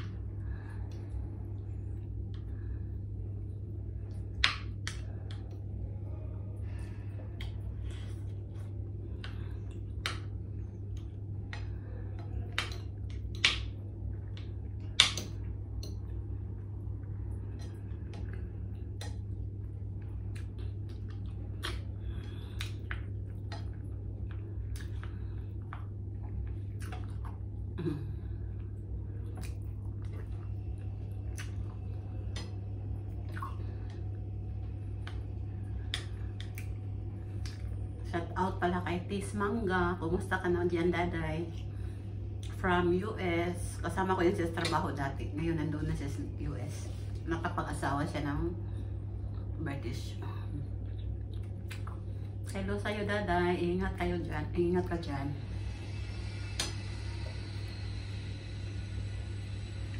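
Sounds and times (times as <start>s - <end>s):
low hum: 0.0s - 59.9s
person chewing: 17.5s - 34.2s, 34.9s - 37.8s, 50.8s - 52.2s.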